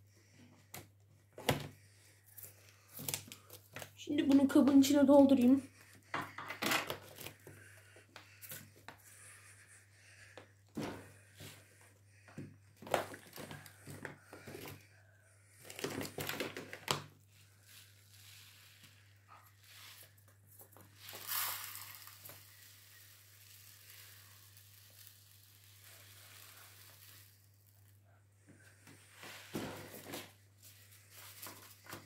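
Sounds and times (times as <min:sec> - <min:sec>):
plastic bag crinkling: 0:15.6 - 0:17.0, 0:20.7 - 0:27.9
litter granules pouring: 0:20.9 - 0:28.0.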